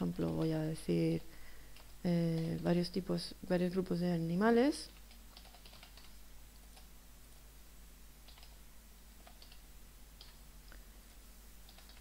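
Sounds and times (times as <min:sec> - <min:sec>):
computer keyboard keystrokes: 0:04.8 - 0:06.1, 0:08.3 - 0:08.6, 0:09.2 - 0:09.6, 0:11.7 - 0:12.0.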